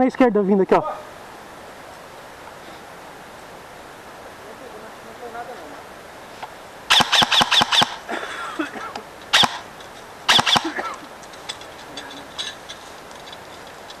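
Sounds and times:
airsoft rifle shots: 0:06.9 - 0:08.1, 0:09.3 - 0:09.7, 0:10.3 - 0:10.8.

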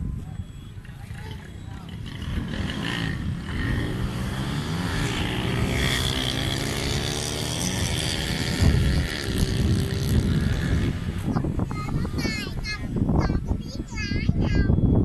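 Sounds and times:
model airplanes buzzing overhead: 0:01.4 - 0:11.6.

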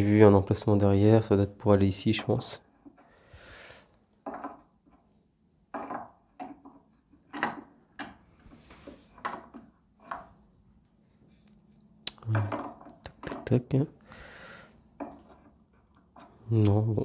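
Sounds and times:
resin parts knocking and scraping: 0:04.2 - 0:05.1, 0:05.7 - 0:10.4, 0:12.2 - 0:13.8, 0:14.9 - 0:16.4.

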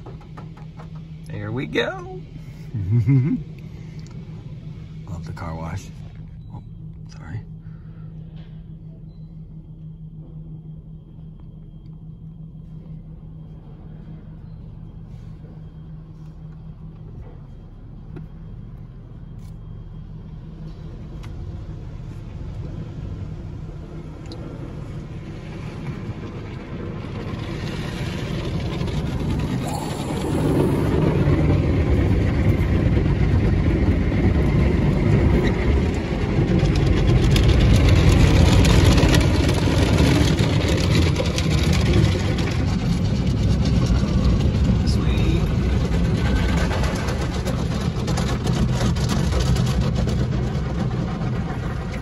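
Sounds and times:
low steady hum: 0:00.0 - 0:52.0
car wash spraying water: 0:20.4 - 0:52.0.

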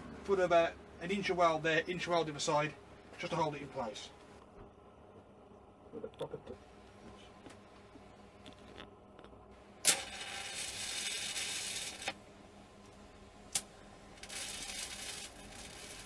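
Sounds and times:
welding arc cracking: 0:09.8 - 0:12.2, 0:13.5 - 0:16.0
welding arc hissing: 0:09.8 - 0:12.2, 0:13.5 - 0:16.0.

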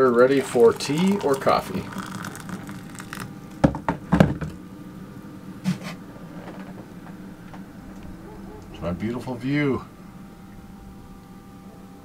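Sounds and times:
water pouring into a mug: 0:00.3 - 0:03.6.

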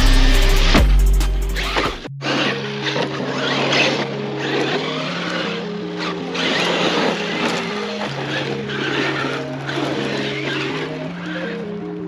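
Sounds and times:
background music: 0:00.0 - 0:12.0
rc truck motor and tyres on dirt: 0:01.5 - 0:12.0.

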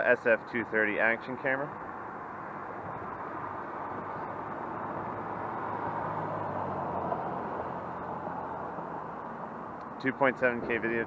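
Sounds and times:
car passing: 0:01.6 - 0:11.0.

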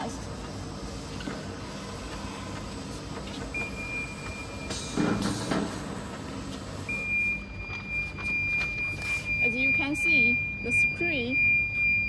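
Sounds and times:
conveyor belts humming: 0:00.0 - 0:12.0
high alarm beep: 0:03.5 - 0:05.3, 0:06.8 - 0:12.0.

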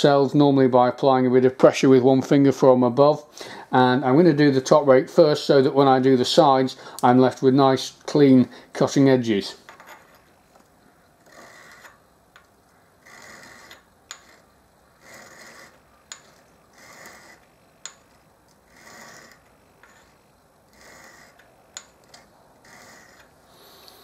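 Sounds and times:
sharpening stone scraping metal: 0:11.3 - 0:12.0, 0:13.0 - 0:23.3.

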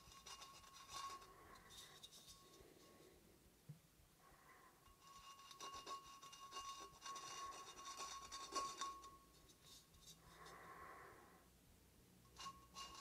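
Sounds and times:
pen nozzle scratching porcelain: 0:05.1 - 0:09.0.

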